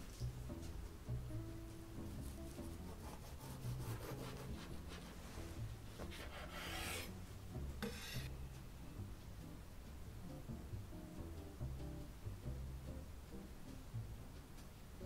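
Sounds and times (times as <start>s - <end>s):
knife sawing through cake: 2.8s - 5.2s, 6.1s - 7.2s, 7.8s - 8.3s
knife scraping: 3.0s - 5.2s, 6.0s - 7.2s, 7.8s - 8.4s.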